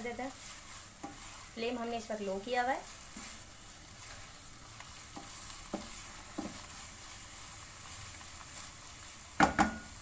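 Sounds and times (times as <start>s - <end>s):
faint ghee sizzle: 0.0s - 10.0s
utensil scraping thick halwa in pan: 0.0s - 10.0s
utensil knocking against pan: 9.4s - 9.9s.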